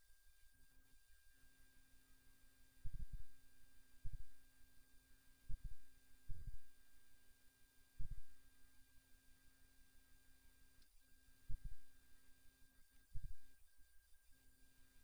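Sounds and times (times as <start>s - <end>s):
low hum: 2.9s - 3.4s.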